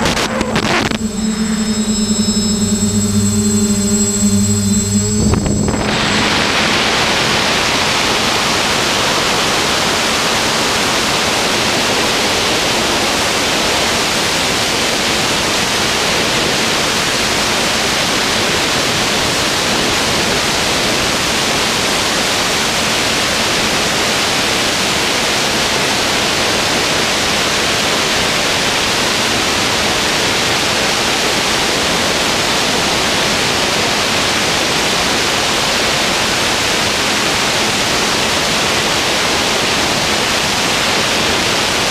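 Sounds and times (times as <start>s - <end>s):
loud steady static hiss: 0.0s - 9.1s.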